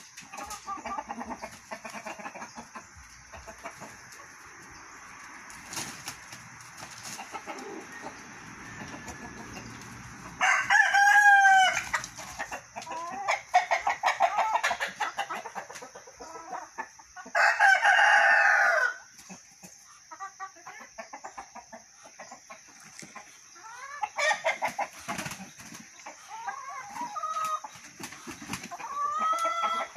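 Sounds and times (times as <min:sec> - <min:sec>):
rapid clucking: 0:00.0 - 0:04.4
roosters crowing: 0:00.0 - 0:19.1, 0:23.4 - 0:27.8, 0:28.6 - 0:29.9.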